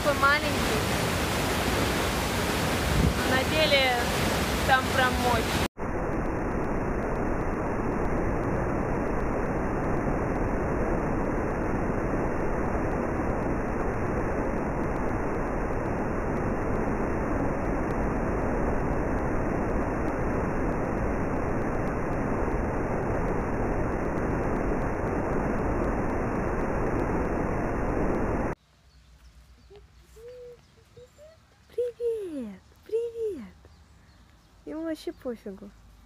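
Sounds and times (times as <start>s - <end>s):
waterfall rushing: 0.0s - 5.7s.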